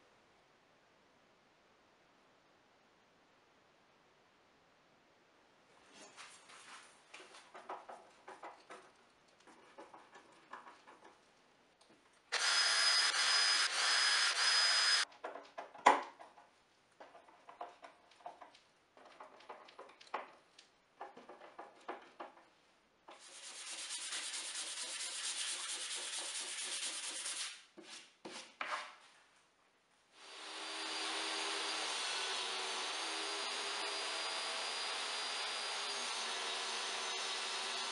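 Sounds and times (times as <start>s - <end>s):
small ticks and knocks: 7.1s - 12.0s, 15.1s - 22.6s
cordless drill driving screws: 12.3s - 15.0s, 30.2s - 37.9s.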